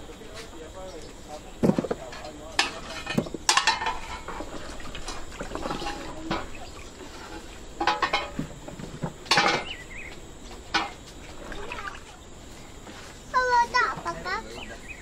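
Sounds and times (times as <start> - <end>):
water splashing and dripping: 10.6 - 12.2.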